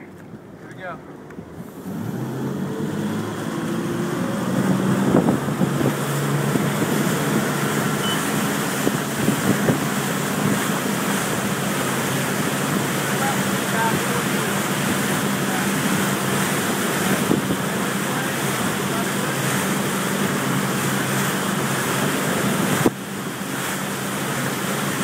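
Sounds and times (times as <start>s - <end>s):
boat engine running: 0.0s - 25.0s
rush of boat wake: 0.0s - 25.0s
wind on microphone: 2.5s - 11.6s, 15.9s - 17.9s.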